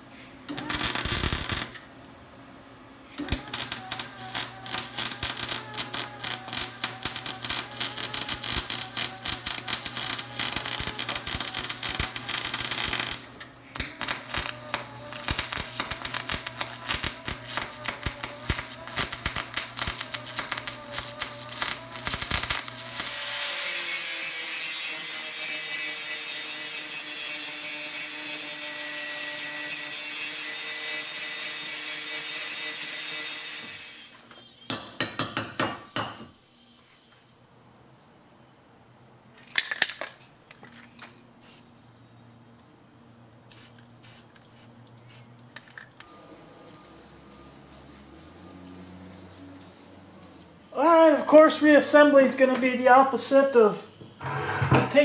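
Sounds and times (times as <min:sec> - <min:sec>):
welder crackling: 0:00.4 - 0:01.9, 0:03.1 - 0:34.2, 0:43.5 - 0:55.0
angle grinder whining on steel: 0:03.2 - 0:34.2, 0:54.2 - 0:54.8.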